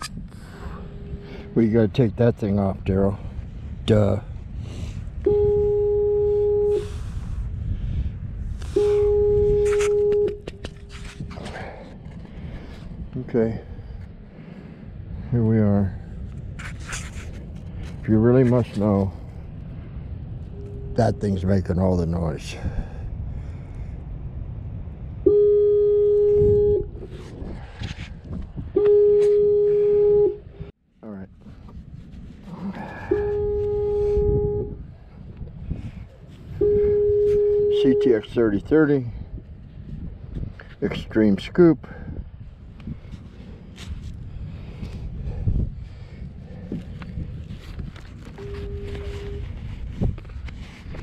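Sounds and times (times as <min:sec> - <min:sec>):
low rumble: 0:00.0 - 0:41.1
fog signal blasts: 0:00.6 - 0:01.8, 0:05.2 - 0:07.0, 0:08.7 - 0:11.0, 0:20.4 - 0:21.8, 0:25.2 - 0:27.0, 0:28.7 - 0:30.7, 0:32.9 - 0:34.8, 0:36.5 - 0:38.5, 0:48.4 - 0:49.5
metal detector tone: 0:05.2 - 0:06.9, 0:08.7 - 0:11.1, 0:20.5 - 0:21.5, 0:28.8 - 0:30.5, 0:32.9 - 0:34.8, 0:36.6 - 0:38.6, 0:48.4 - 0:49.6.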